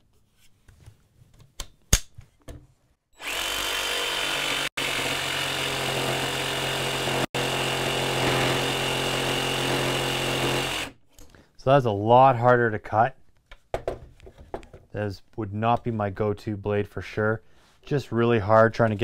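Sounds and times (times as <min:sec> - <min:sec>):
jigsaw sawing through wood: 0:03.2 - 0:11.0.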